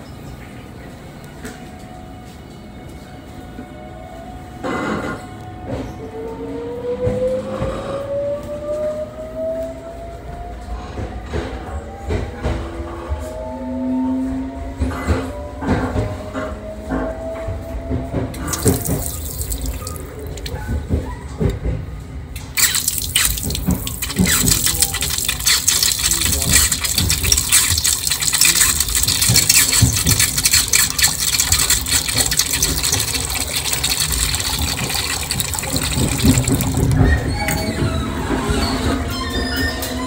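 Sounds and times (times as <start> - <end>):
tap water running into basin: 18.4 - 21.6, 22.4 - 37.7.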